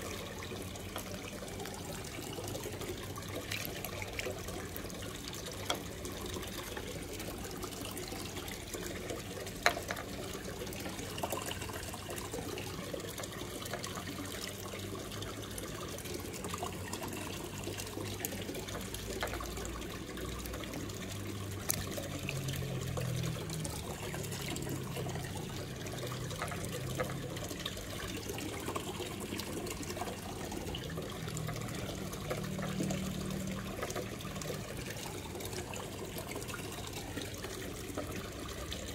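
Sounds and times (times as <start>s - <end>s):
aquarium water trickling: 0.0s - 38.9s.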